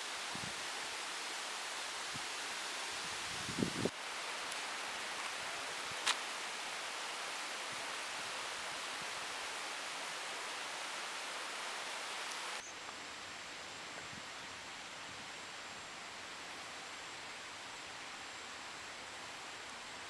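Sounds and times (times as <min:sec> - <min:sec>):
river water rushing over rocks: 0:03.9 - 0:12.6.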